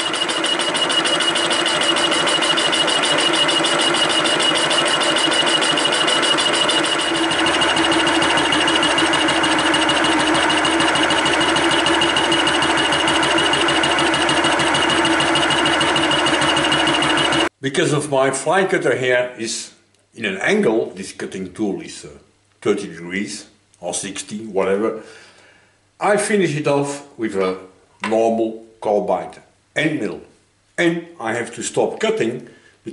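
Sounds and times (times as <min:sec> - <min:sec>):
fly cutter cutting rattle: 0:00.0 - 0:17.5
milling machine whine: 0:00.0 - 0:17.5.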